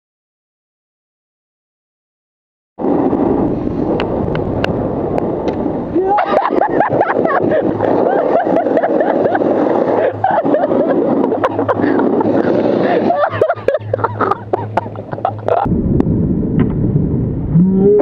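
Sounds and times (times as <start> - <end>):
snowboard sliding over snow: 2.8 - 15.8
wind buffeting microphone: 2.8 - 18.0.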